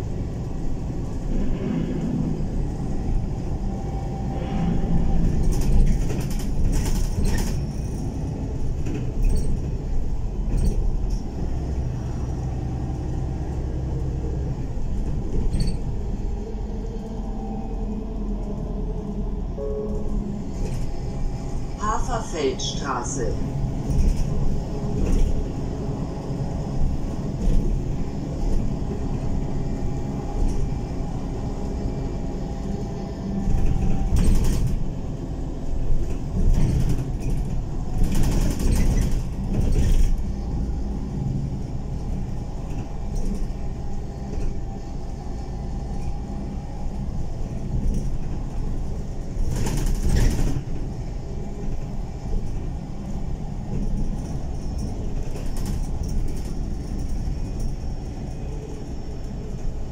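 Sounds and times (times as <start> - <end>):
bus engine and road rumble: 0.0 - 59.9.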